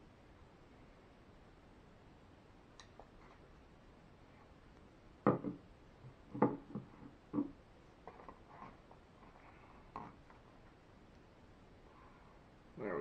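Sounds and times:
knocks on a table: 5.2 - 5.6.

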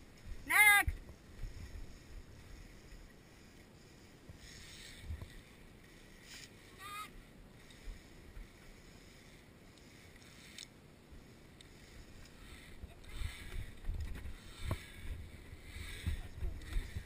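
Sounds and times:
wind buffeting microphone: 12.0 - 17.0.

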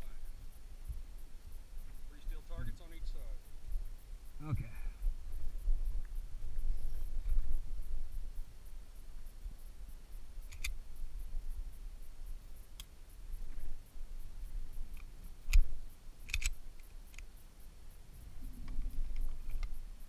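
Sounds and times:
handgun clicks and knocks: 16.3 - 17.3.

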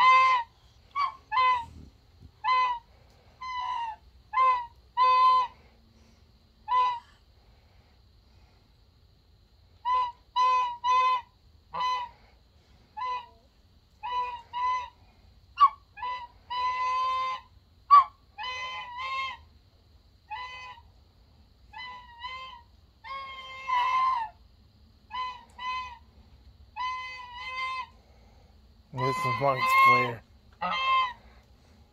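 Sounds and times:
geese honking: 0.0 - 1.8, 29.0 - 31.2.

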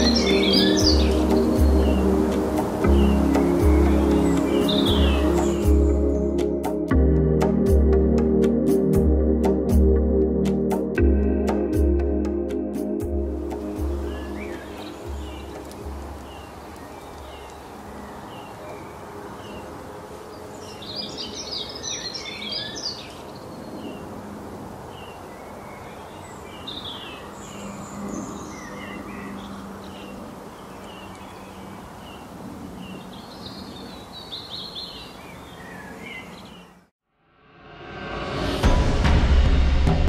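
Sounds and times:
high bird chirps: 0.0 - 2.2, 2.8 - 6.4
birds chattering: 0.0 - 6.4, 13.6 - 19.8
forest background hiss: 0.0 - 9.8, 10.5 - 40.0.

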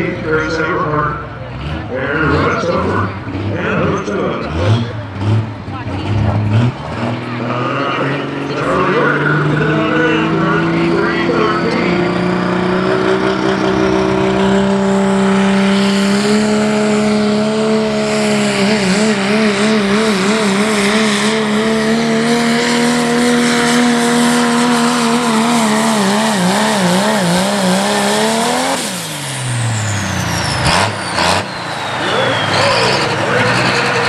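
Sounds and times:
diesel truck engine at full throttle: 0.0 - 34.0.

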